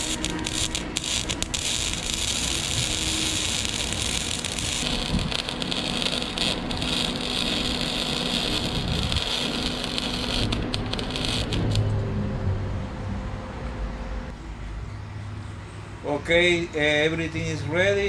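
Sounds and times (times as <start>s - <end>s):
welder arc sizzling and crackling: 0.0s - 11.8s.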